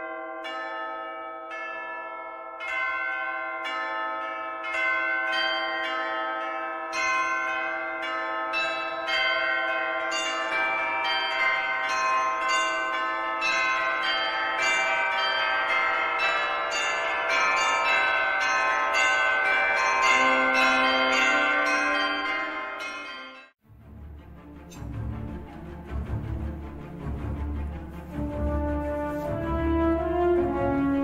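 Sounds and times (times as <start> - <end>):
bells ringing in a peal: 0.0 - 23.6.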